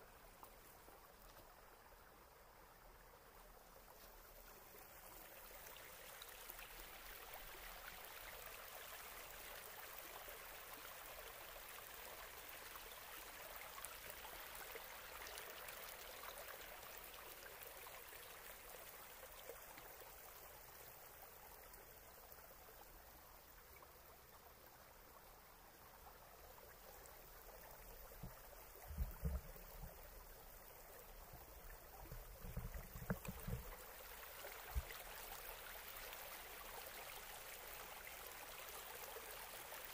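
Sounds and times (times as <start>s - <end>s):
creek water rushing over rocks: 26.3s - 39.9s.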